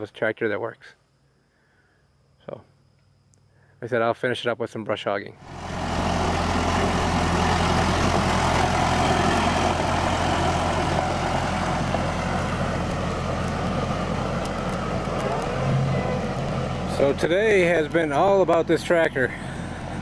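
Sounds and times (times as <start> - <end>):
tractor engine driving past: 5.4 - 20.0
tyres on gravel: 5.4 - 20.0.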